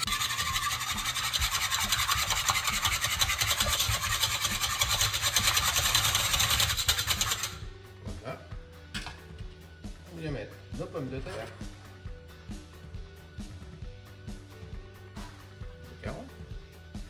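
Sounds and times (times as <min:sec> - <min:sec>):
whisk scraping pot: 0:00.0 - 0:07.6.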